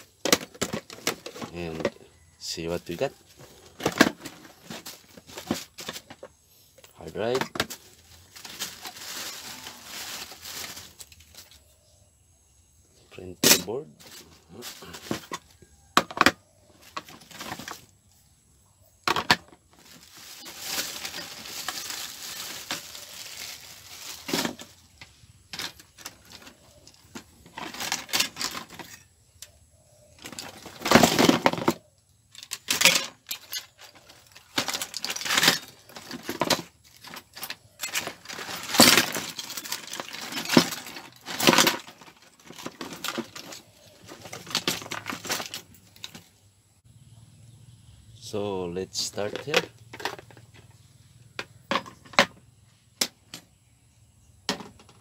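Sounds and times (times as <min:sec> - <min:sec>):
plastic bags rustling: 0:00.0 - 0:06.3, 0:06.9 - 0:11.6, 0:14.0 - 0:15.5, 0:16.8 - 0:17.9, 0:19.1 - 0:25.0, 0:25.6 - 0:29.0, 0:30.2 - 0:31.8, 0:32.4 - 0:46.3
metal cases clattering: 0:00.0 - 0:06.4, 0:07.1 - 0:11.4, 0:13.4 - 0:17.9, 0:25.5 - 0:29.0, 0:30.2 - 0:31.8, 0:32.4 - 0:46.2, 0:49.1 - 0:50.5.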